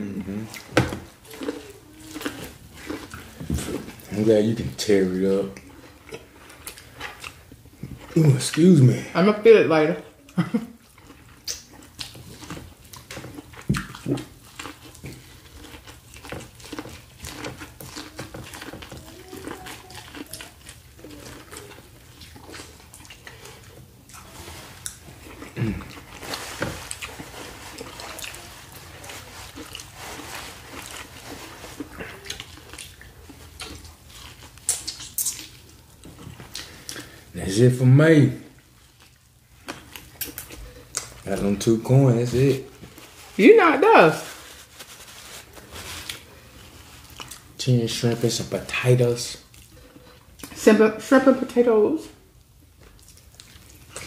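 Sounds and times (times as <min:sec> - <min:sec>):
lip smacking and chewing: 0:00.4 - 0:04.1, 0:05.5 - 0:08.7, 0:10.2 - 0:30.0, 0:30.7 - 0:37.2, 0:38.6 - 0:41.3, 0:47.0 - 0:47.6, 0:52.4 - 0:54.0
sucking and lip smacks: 0:11.0 - 0:12.2, 0:31.8 - 0:37.1.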